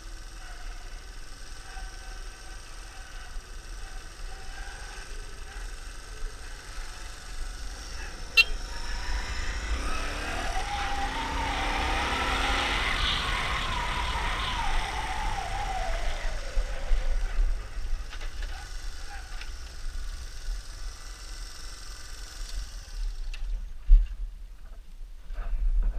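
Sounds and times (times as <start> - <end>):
small motorcycle engine running: 0.0 - 23.7
low wind rumble: 6.7 - 20.5.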